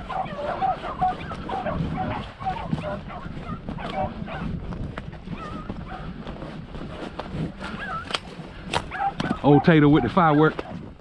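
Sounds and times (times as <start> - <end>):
beagles baying: 0.0 - 4.6, 8.8 - 10.8.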